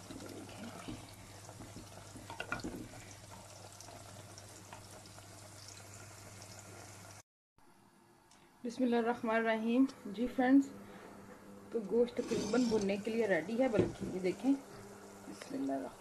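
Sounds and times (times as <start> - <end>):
meat sizzling in a pot: 0.0 - 7.2
wooden spoon scraping a pot: 11.8 - 13.7.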